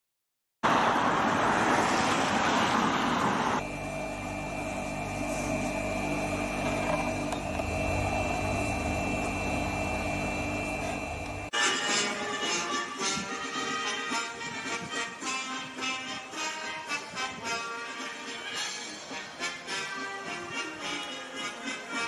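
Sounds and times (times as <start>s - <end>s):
loud rushing noise: 0.6s - 6.3s
mechanical hum with high whine: 3.6s - 11.5s.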